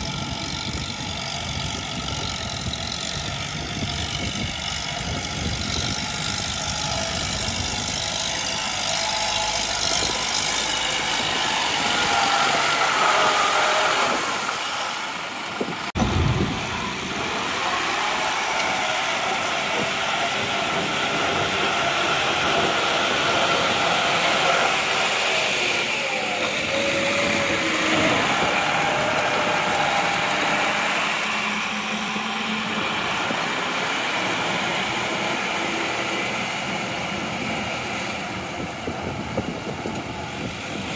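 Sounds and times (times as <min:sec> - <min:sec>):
tractor engines running under load: 0:00.0 - 0:40.9.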